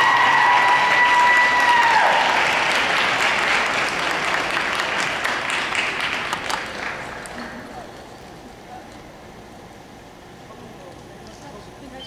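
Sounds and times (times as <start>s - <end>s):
crowd applauding: 0.0s - 8.0s.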